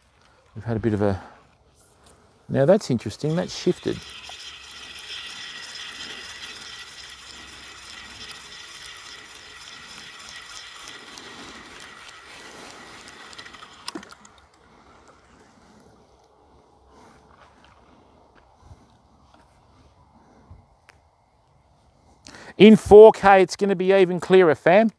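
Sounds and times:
fishing reel whirring: 0:03.0 - 0:16.0
fishing reel click: 0:03.1 - 0:14.6.

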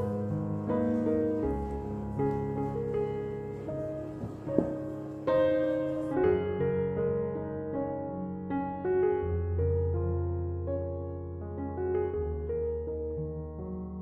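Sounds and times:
slow piano melody: 0:00.0 - 0:14.0
short knock: 0:04.2 - 0:04.9.

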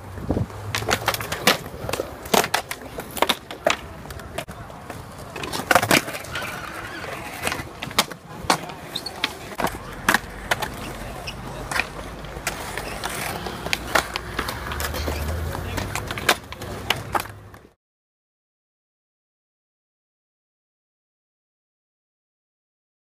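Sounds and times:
skateboard wheels rolling on concrete: 0:00.0 - 0:17.8
skateboard clacks and knocks: 0:00.4 - 0:17.8.

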